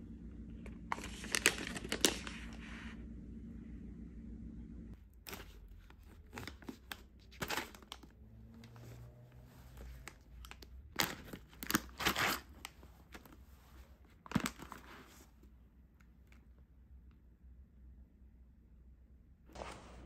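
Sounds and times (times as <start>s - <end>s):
foil crinkling: 0.9s - 2.6s, 5.3s - 8.1s, 9.7s - 13.4s
foil bag tearing open: 1.0s - 2.3s, 9.8s - 13.3s.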